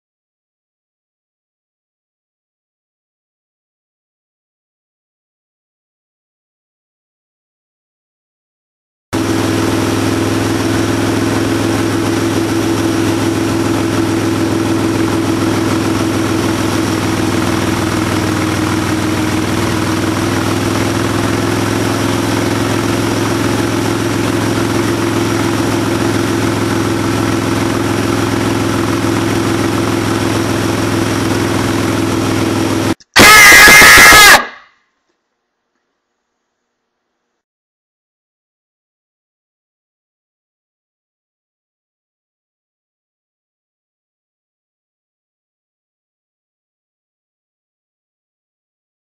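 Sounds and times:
motorcycle engine running: 9.2s - 34.4s
loud shrill sound: 33.2s - 34.8s.

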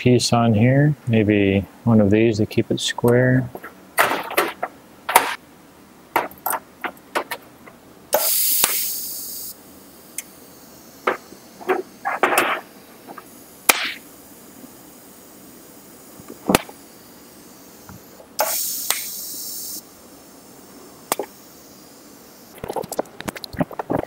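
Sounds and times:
loud hiss: 8.1s - 22.6s.

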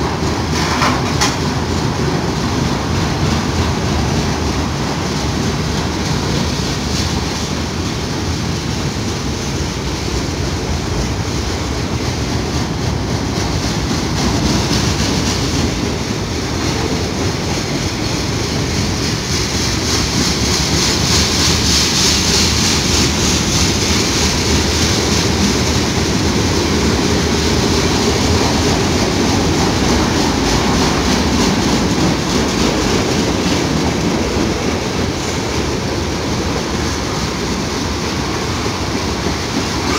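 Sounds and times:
train wheels clattering on rails: 0.0s - 39.9s.

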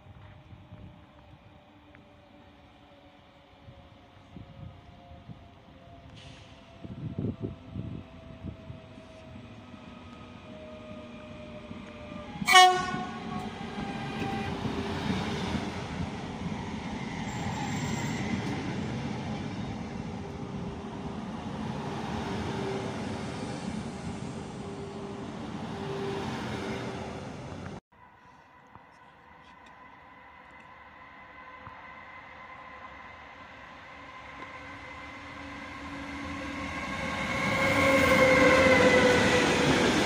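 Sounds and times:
rush of train wheels and air: 0.0s - 28.6s
electric train whine: 0.0s - 40.0s
train horn blast: 12.4s - 14.8s.

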